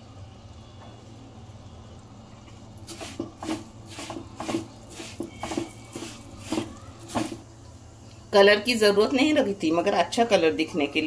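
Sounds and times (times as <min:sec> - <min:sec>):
wooden spoon scraping pan: 0:02.9 - 0:07.4.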